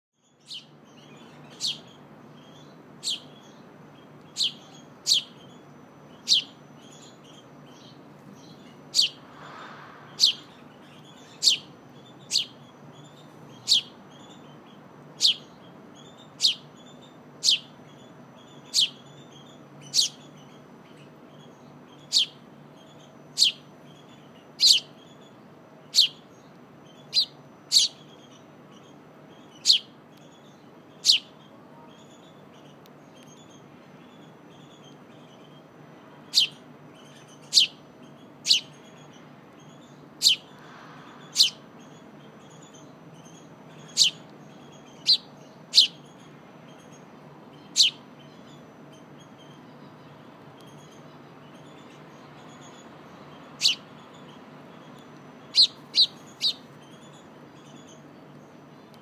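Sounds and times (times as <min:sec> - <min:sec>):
sparrow chirping: 0:00.2 - 0:59.0.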